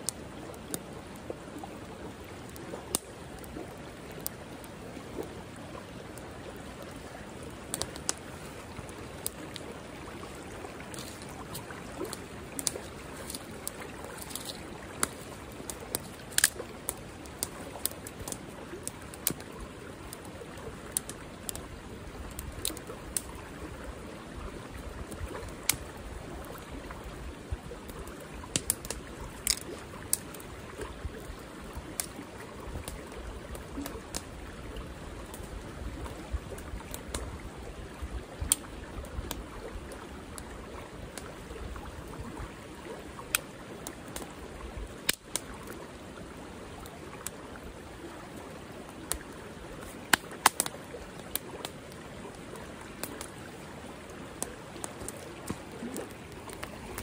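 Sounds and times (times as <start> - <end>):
campfire crackling: 0.0 - 57.0
creek rushing: 0.0 - 57.0
twigs snapping: 10.9 - 15.2, 15.9 - 18.4, 28.6 - 30.2, 50.1 - 51.4.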